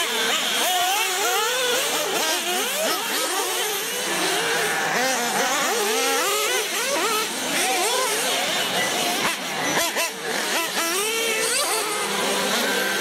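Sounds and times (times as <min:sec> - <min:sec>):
rc car motors whining: 0:00.0 - 0:13.0.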